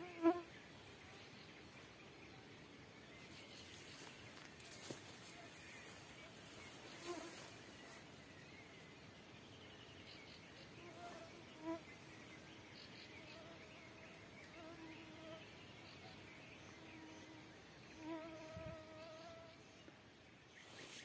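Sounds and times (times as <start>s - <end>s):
flying insect buzzing: 0.0s - 0.5s, 6.8s - 7.7s, 16.9s - 19.6s.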